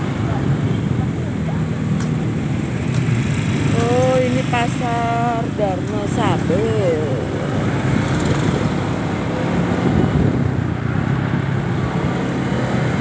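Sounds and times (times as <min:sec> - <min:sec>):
road noise: 0:00.0 - 0:13.0
scooter engine hum: 0:00.0 - 0:13.0.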